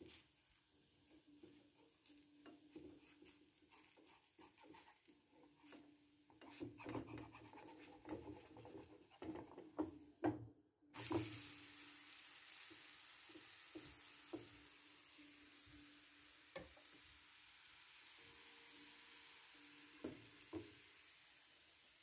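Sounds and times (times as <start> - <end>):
faint sizzle: 0.0 - 22.0
spatula scraping and tapping pan: 1.0 - 11.4, 12.6 - 14.7, 16.5 - 17.1, 20.0 - 20.8.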